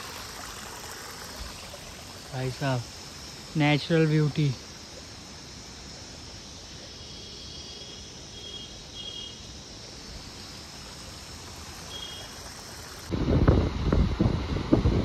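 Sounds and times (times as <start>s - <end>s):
flowing stream: 0.0s - 15.0s
faint high chirps: 11.8s - 13.0s.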